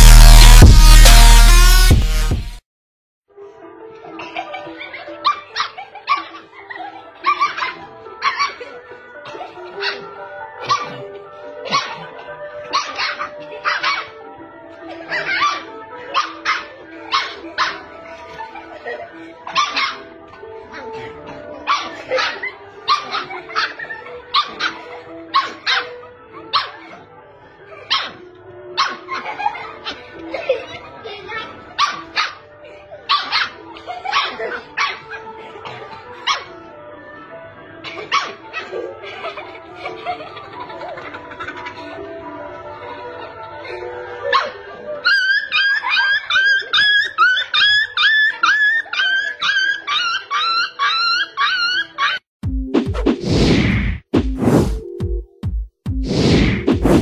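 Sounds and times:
background music: 0.0s - 2.6s, 3.3s - 57.0s
puppy barking: 4.2s - 14.2s, 14.8s - 36.6s, 37.8s - 40.6s, 43.6s - 52.2s.

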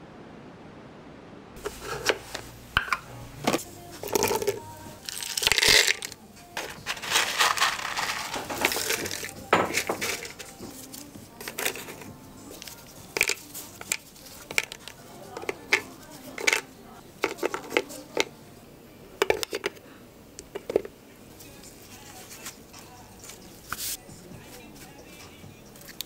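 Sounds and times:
dishes and utensils clattering: 1.6s - 18.4s, 19.2s - 19.8s, 20.5s - 21.0s.

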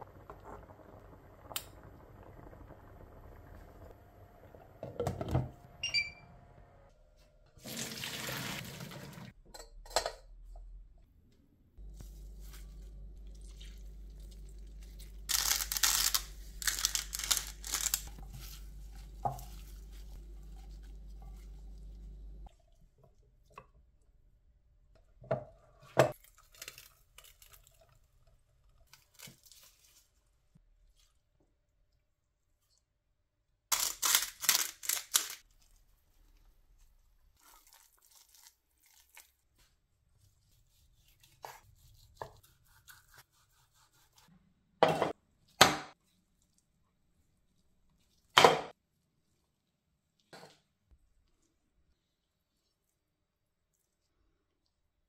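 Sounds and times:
water pouring into sink: 7.6s - 9.3s.

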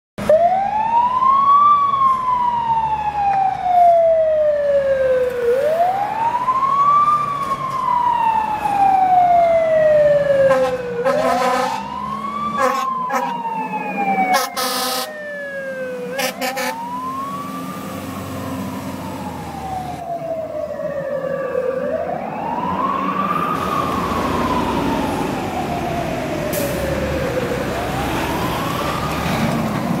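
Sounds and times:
fire truck siren wailing: 0.2s - 30.0s
air horn blasts: 10.5s - 11.9s, 12.6s - 13.3s, 14.3s - 15.1s, 16.1s - 16.8s.

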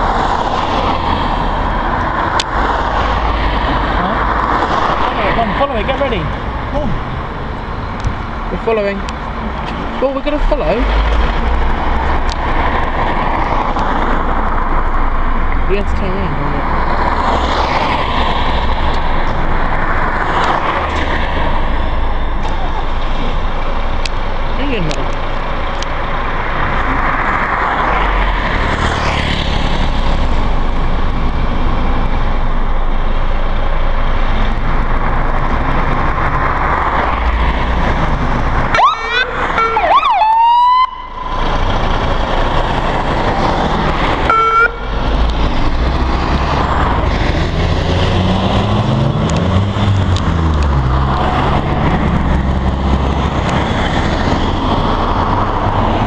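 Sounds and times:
rumble of engines and traffic: 0.0s - 56.0s
fire engine siren: 38.6s - 43.3s, 44.1s - 45.2s
engine revving through gears: 41.4s - 56.0s.

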